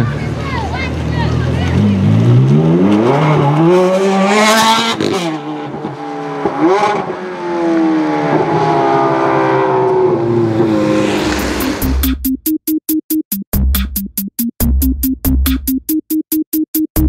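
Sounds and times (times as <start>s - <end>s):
car engine accelerating hard: 0.0s - 12.1s.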